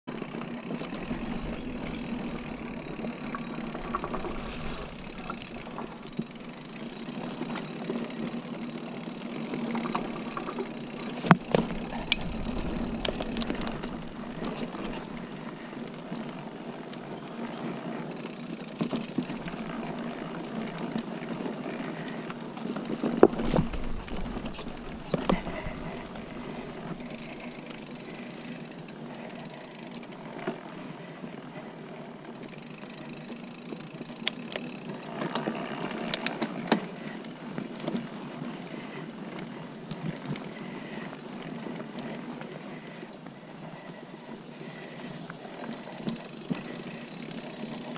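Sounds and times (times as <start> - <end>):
bike clicks and knocks over bumps: 0.1 - 47.9
bike tyres rolling on dirt trail: 0.1 - 47.9.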